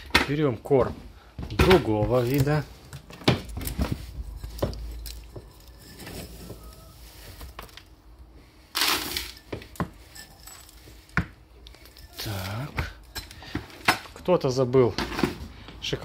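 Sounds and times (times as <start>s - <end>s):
clinks and rustles: 1.6s - 8.0s, 8.8s - 14.3s.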